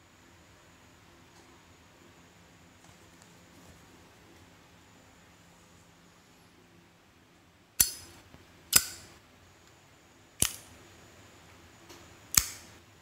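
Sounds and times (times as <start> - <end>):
lighter lid clicking open and shut: 7.8 - 8.1, 8.7 - 9.1, 10.4 - 10.7, 12.3 - 12.7.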